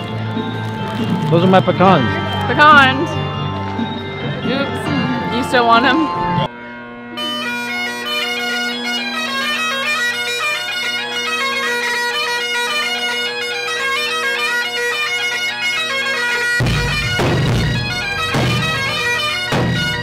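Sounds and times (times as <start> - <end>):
bagpipes playing a melody: 0.0 - 20.0
heavy drum beats: 16.6 - 20.0.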